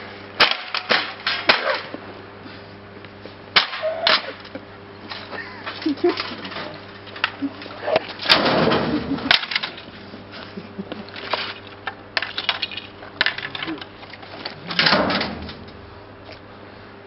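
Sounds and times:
panels knocking in metal dumpster: 0:08.3 - 0:09.6.

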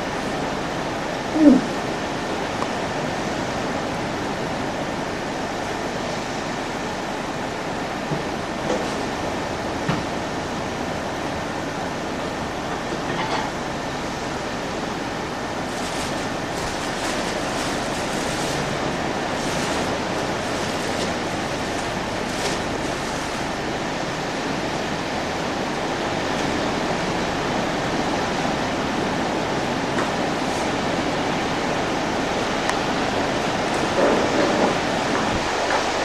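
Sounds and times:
sea surf washing against rocks: 0:14.6 - 0:25.7.

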